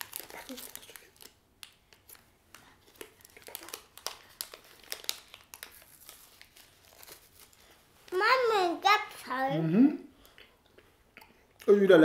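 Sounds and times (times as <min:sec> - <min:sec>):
wrapper crinkling: 0:00.0 - 0:08.5.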